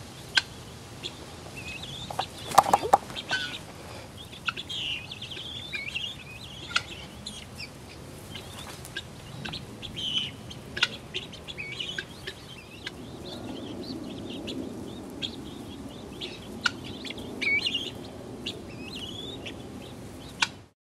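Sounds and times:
guinea fowl chirping and chattering: 0.1 - 20.7
sharp clicks: 2.1 - 3.1.

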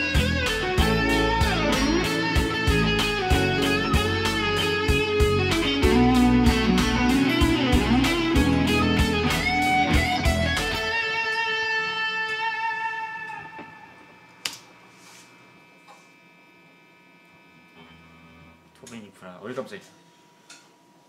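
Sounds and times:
drums and bass backing track: 0.0 - 11.0
electric guitar solo: 0.0 - 14.3.

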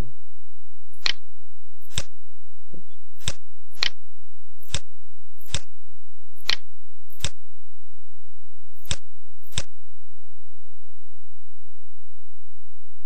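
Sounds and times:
low electrical hum: 0.0 - 13.0
computer mouse clicking: 1.0 - 1.2, 1.8 - 2.1, 3.2 - 4.0, 4.6 - 5.7, 6.4 - 7.4, 8.8 - 9.7.

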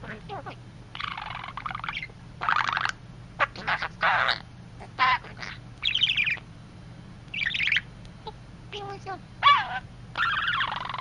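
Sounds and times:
budgerigar chattering: 0.0 - 6.4, 7.3 - 7.9, 9.4 - 11.0.

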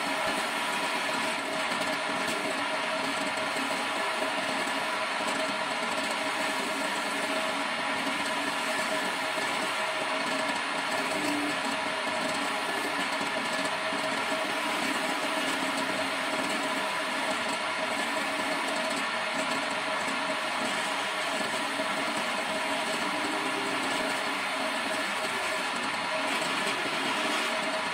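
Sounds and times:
chisel cutting spinning wood: 0.0 - 27.9
electric motor humming: 20.4 - 27.9.

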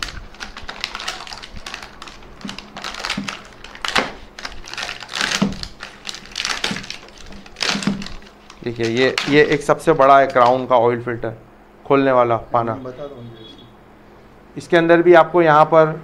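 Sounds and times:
crinkling plastic packaging: 0.0 - 10.7.

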